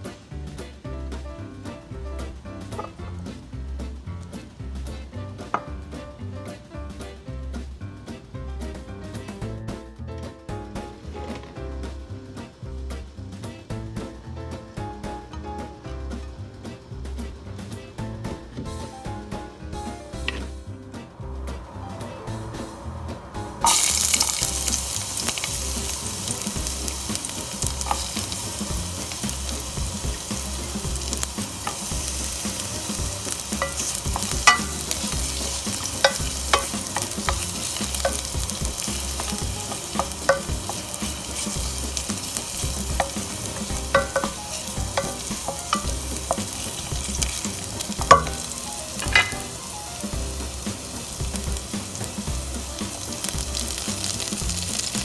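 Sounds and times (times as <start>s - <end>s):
garlic sizzling in hot oil: 0.0s - 9.5s, 10.6s - 22.7s, 23.6s - 55.0s
wooden spatula stirring pot: 23.6s - 55.0s.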